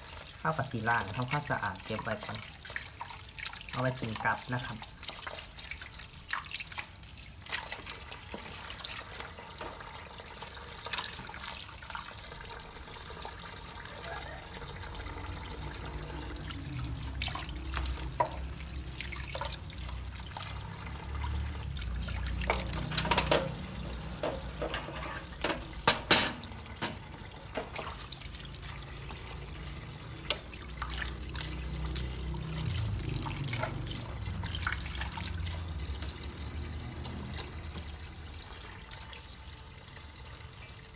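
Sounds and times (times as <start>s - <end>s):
water splashing into steel sink: 0.0s - 40.9s
knocks against sink: 25.4s - 27.0s.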